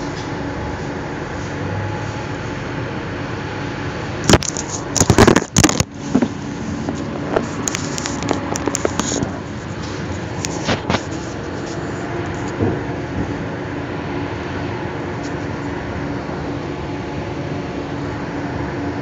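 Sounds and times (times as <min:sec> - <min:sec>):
train running noise: 0:00.0 - 0:19.0
phone handling knocks and rubbing: 0:04.2 - 0:11.8.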